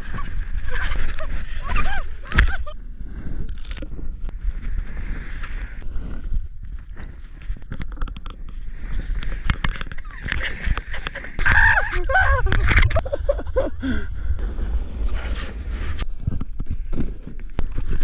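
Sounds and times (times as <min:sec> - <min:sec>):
wind rumble on microphone: 0:00.0 - 0:18.0
person laughing and shouting: 0:11.4 - 0:14.0.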